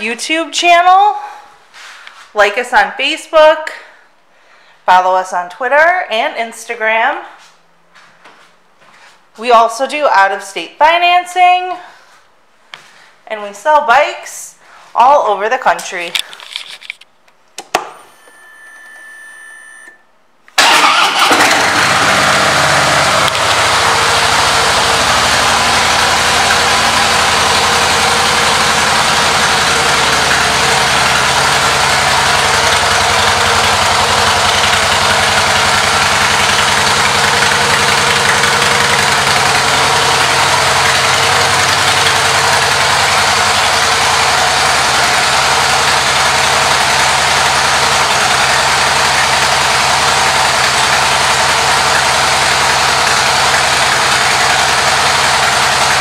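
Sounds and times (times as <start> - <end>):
motorcycle engine idling: 20.9 - 56.0.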